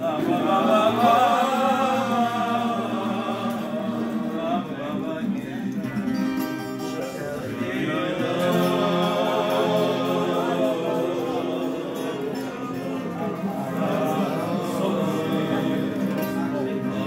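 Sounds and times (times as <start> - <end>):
men singing together: 0.0 - 6.2, 6.8 - 17.0
strummed acoustic guitars: 0.0 - 17.0.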